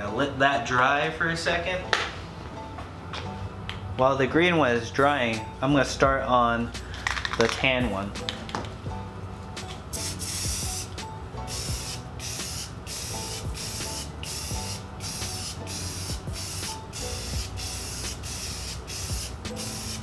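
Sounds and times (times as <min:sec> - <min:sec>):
aerosol spray can hissing: 0:10.0 - 0:20.0.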